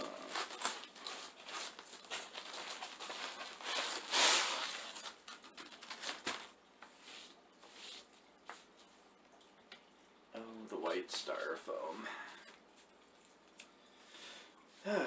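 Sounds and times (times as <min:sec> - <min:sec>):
styrofoam and cloth bag rustling: 0:00.0 - 0:08.1.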